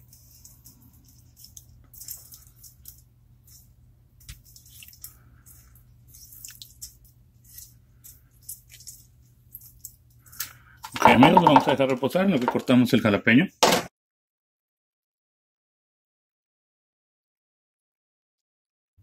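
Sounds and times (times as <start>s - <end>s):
lime juice squishing and dripping: 4.2s - 10.6s.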